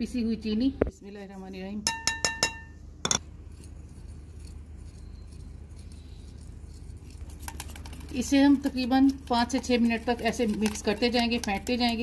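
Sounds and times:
steady low hum: 0:00.0 - 0:12.0
glass bowl clinking: 0:01.8 - 0:03.2
whisk ticking and scraping in bowl: 0:03.5 - 0:12.0.

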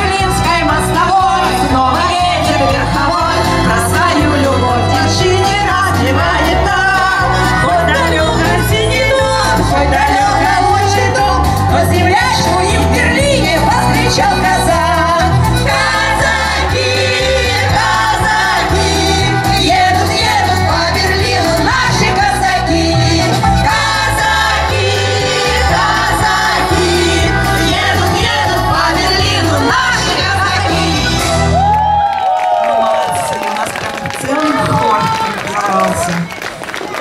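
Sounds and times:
group singing through microphones: 0:00.0 - 0:31.6
instrumental accompaniment with bass line: 0:00.0 - 0:36.2.

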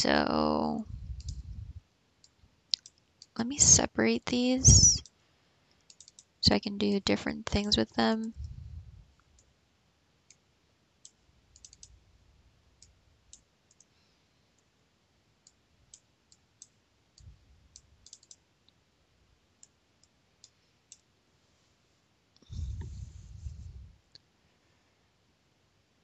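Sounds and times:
computer mouse clicks: 0:01.0 - 0:01.6, 0:02.2 - 0:03.8, 0:04.7 - 0:06.4, 0:11.0 - 0:12.0, 0:12.8 - 0:14.0, 0:15.4 - 0:18.8, 0:19.6 - 0:21.1.

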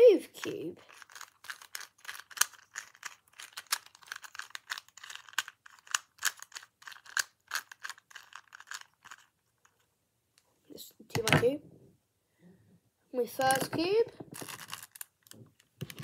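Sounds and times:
puzzle cube clicking as twisted: 0:00.9 - 0:09.4.

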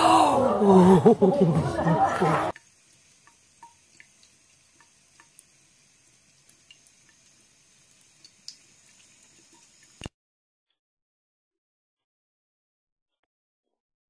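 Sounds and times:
tap water running into sink: 0:02.5 - 0:10.1.

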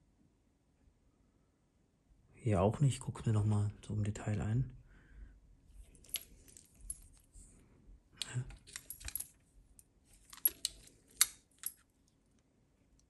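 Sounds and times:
watches clicking and knocking: 0:05.8 - 0:07.4, 0:08.2 - 0:09.4, 0:10.1 - 0:11.9.

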